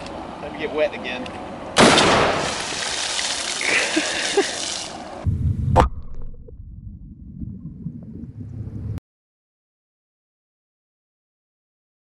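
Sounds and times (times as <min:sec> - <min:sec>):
water splashing down: 0:02.0 - 0:05.1
muffled rumble of bubbles: 0:05.2 - 0:09.0
muffled underwater thump: 0:05.3 - 0:09.0.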